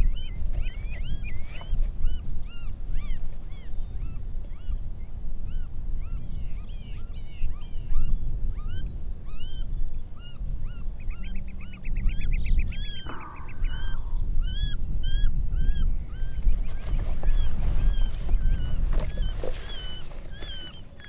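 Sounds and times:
steady low rumble: 10.0 - 16.7
animal calls rising and falling: 13.0 - 14.2.

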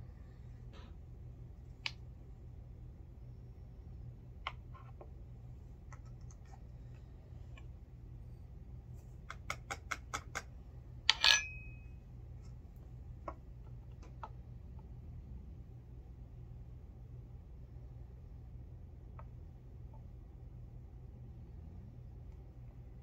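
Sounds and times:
low hum: 0.0 - 9.2
sharp metallic clink: 11.1 - 11.9.

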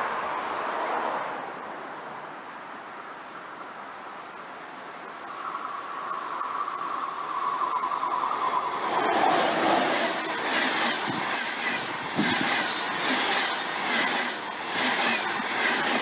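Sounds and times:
wheels rushing and clattering on rails: 5.0 - 16.0
train whining tone: 5.2 - 16.0.

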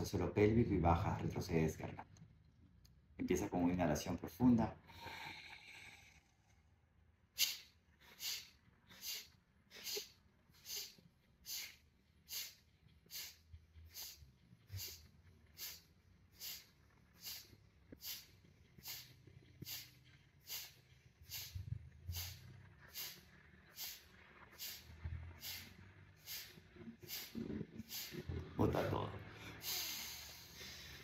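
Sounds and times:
forceful nasal exhalations: 7.4 - 28.4, 29.3 - 31.0.

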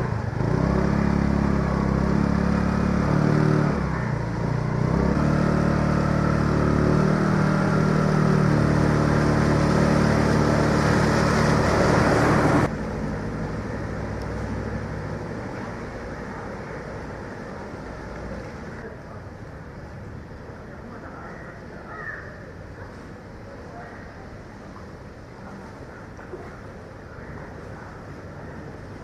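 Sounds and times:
motor scooter engine running: 0.0 - 12.7
water splashing around wheels: 0.0 - 21.9
vehicles moving through water: 0.0 - 29.0.

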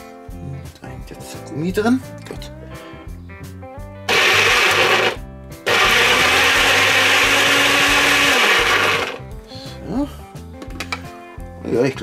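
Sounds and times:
background music: 0.0 - 12.0
blender motor running: 4.1 - 9.2.

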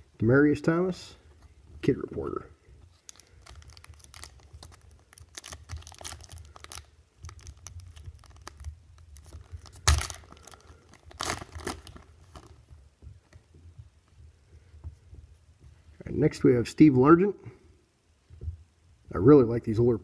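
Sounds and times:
wrapper tearing and crinkling: 3.0 - 12.6.

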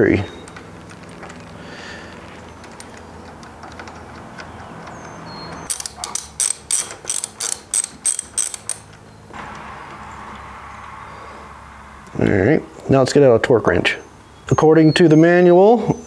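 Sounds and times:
hand ratchet clicking: 2.7 - 8.9.

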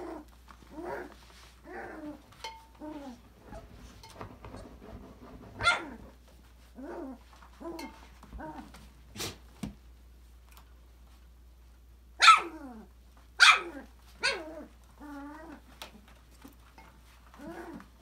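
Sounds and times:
puppy yapping barks: 5.6 - 6.0, 12.2 - 12.7, 13.4 - 14.5.

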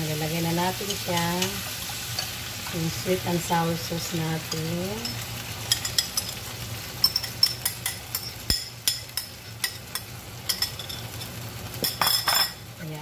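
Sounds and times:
metal spoon clinking on glass bowl: 11.8 - 12.6.

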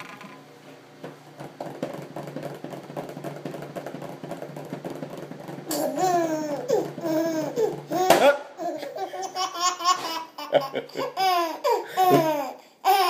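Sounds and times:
baby laughing: 5.7 - 13.0.

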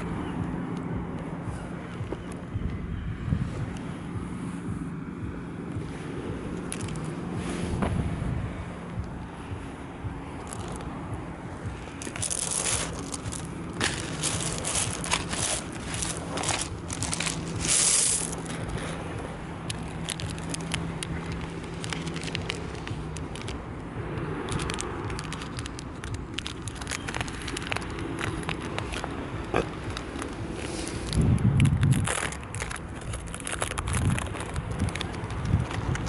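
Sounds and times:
stones clicking together: 6.6 - 7.1, 10.4 - 10.9, 11.9 - 18.8, 19.6 - 36.0
footsteps crunching on pebbles: 11.6 - 23.6, 24.4 - 36.0.

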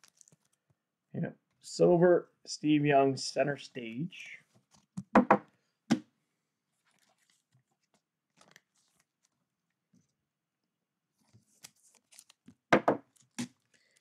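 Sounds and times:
faint card clicks and rustles: 0.0 - 0.8, 6.8 - 9.4, 11.2 - 14.0.

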